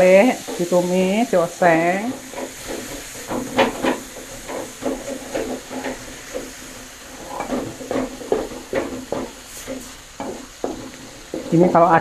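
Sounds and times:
metal spatula scraping wok: 0:00.0 - 0:12.0
stir-fry sizzling: 0:00.0 - 0:12.0.

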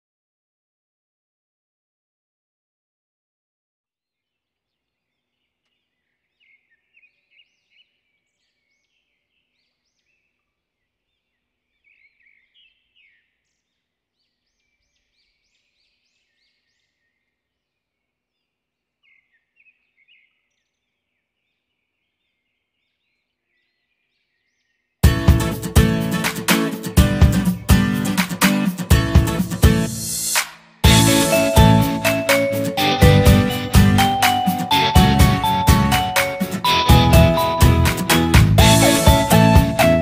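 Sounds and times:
small birds chirping: 0:04.4 - 0:25.0.

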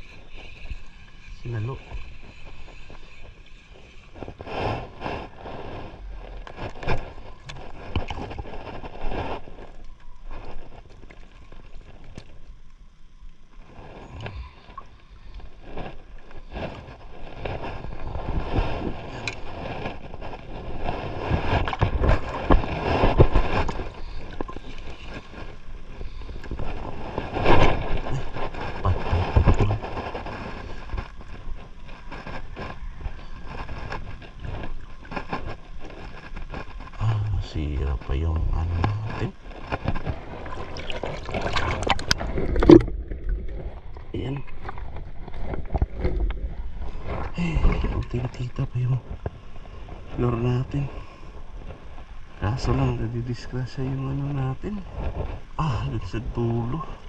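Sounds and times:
water slapping against boat hull: 0:39.6 - 0:48.0.

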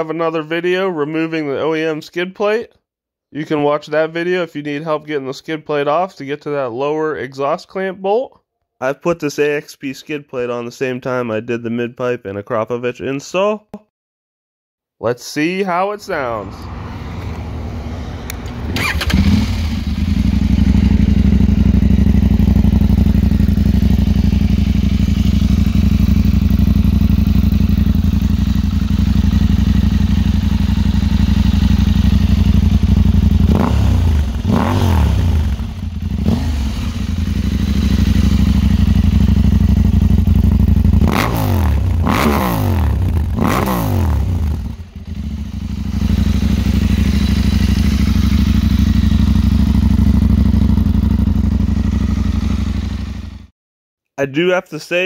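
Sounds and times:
engine throttle blips: 0:16.2 - 0:51.0
motorcycle engine idling: 0:18.3 - 0:53.5.

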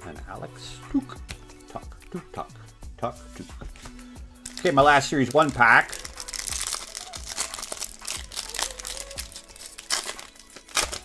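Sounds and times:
plastic wrapper crinkling and tearing: 0:04.4 - 0:11.0.

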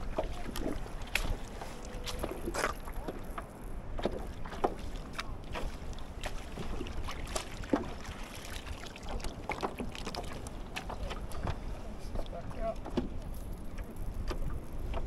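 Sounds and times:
small waves lapping against kayak hull: 0:00.0 - 0:15.0.

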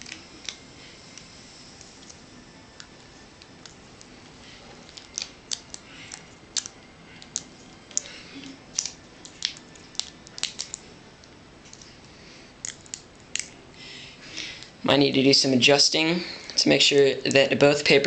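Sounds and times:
sharp clicks and crackles: 0:08.7 - 0:11.9.

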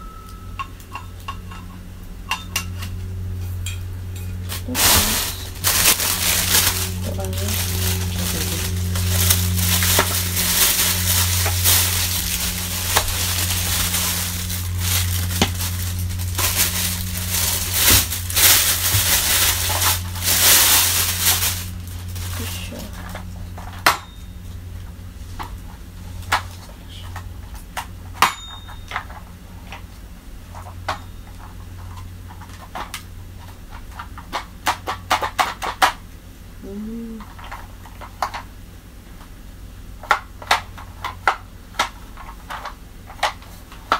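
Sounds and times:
steady low hum: 0:00.0 - 0:34.7
plastic wrapping crinkling: 0:04.3 - 0:23.8
plastic parts clicking and knocking: 0:31.4 - 0:36.0.

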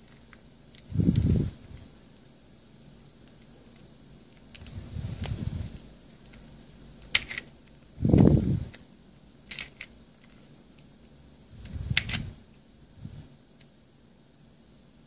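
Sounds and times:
plastic puzzle clicks: 0:06.2 - 0:07.8, 0:08.7 - 0:10.5, 0:11.6 - 0:12.3.

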